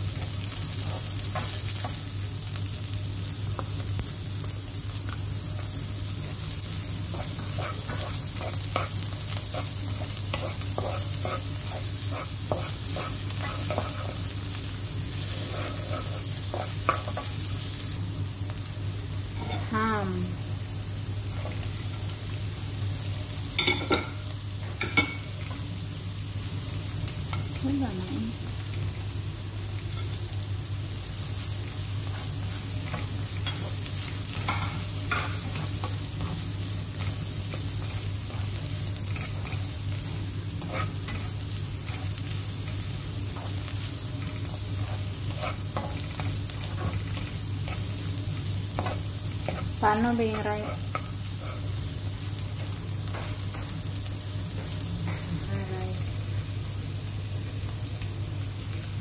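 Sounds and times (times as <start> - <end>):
food sizzling in a pan: 0.0 - 59.0
spatula stirring and scraping: 5.6 - 17.6, 32.1 - 53.7.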